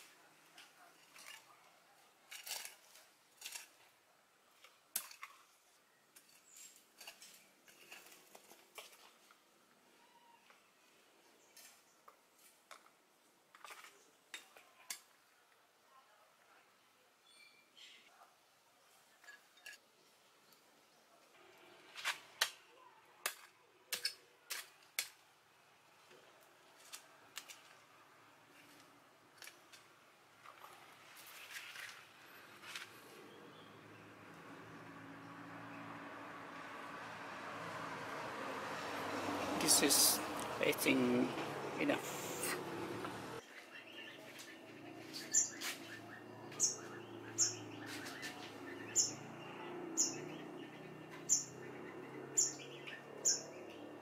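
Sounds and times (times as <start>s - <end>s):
metal rod scraping dry soil: 2.2s - 3.9s, 6.2s - 9.2s.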